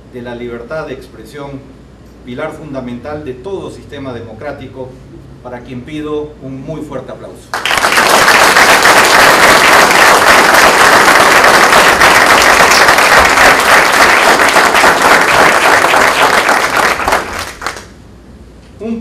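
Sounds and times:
audience applauding: 7.5s - 18.0s.

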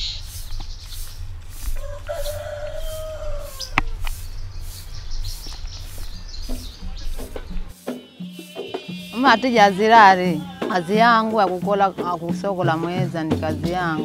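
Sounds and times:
steady low rumble: 0.0s - 2.1s
broom sweeping sandy ground: 0.0s - 14.0s
small birds chirping: 0.0s - 14.0s
rooster crowing: 1.8s - 4.1s.

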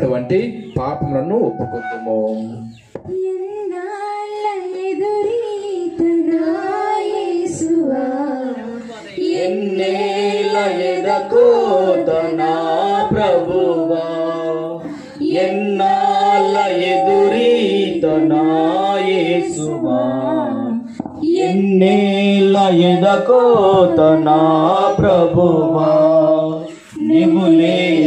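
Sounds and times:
person singing a hymn: 3.2s - 28.0s.

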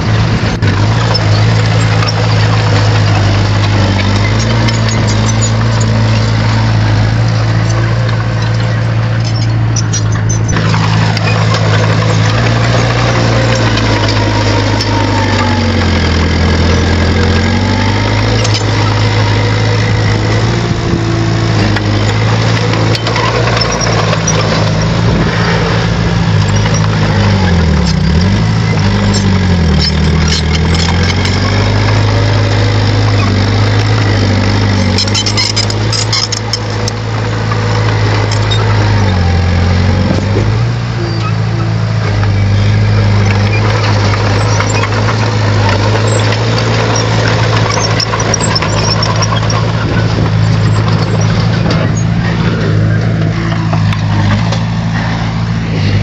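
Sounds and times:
bulldozer diesel engine under load: 0.0s - 56.0s
scattered clicks: 26.3s - 39.2s.

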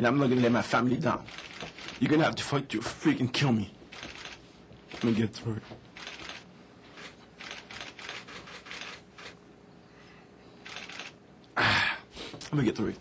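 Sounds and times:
camera shutters clicking: 1.3s - 2.1s, 3.9s - 5.2s, 6.0s - 9.4s, 10.6s - 11.2s.

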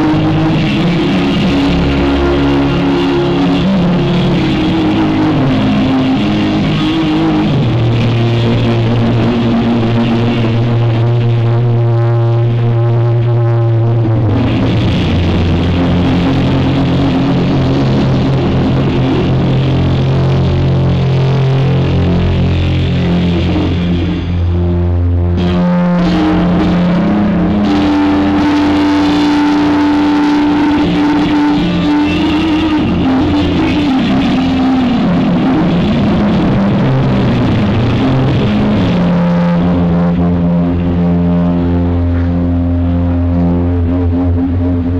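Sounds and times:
electric guitar solo: 0.0s - 44.9s.

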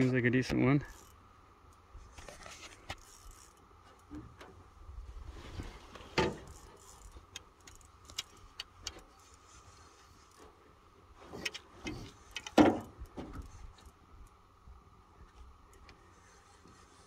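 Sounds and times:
fishing tackle clicking and knocking: 6.2s - 9.1s.

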